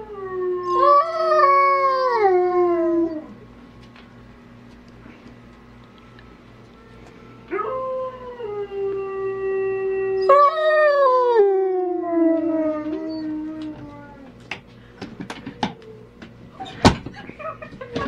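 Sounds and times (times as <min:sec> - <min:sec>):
dog howling: 0:00.0 - 0:03.4, 0:07.5 - 0:14.4.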